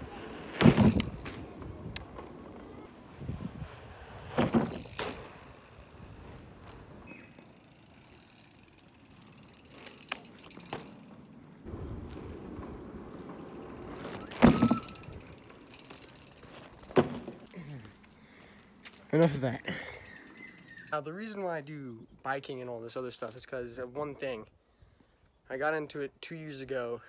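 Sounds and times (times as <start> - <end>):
bike clunks and rattles: 0.0 - 2.9, 3.8 - 18.2.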